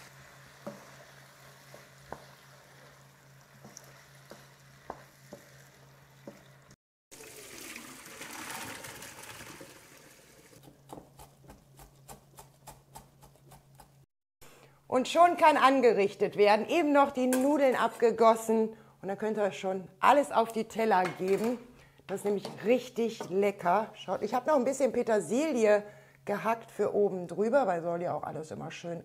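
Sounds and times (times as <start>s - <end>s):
wooden spoon stirring in wok: 0.0s - 6.6s
food sizzling: 0.0s - 10.6s
spoon scraping and tapping pan: 0.6s - 1.0s, 1.7s - 2.4s, 3.6s - 5.5s
knife chopping on plastic board: 10.6s - 14.0s.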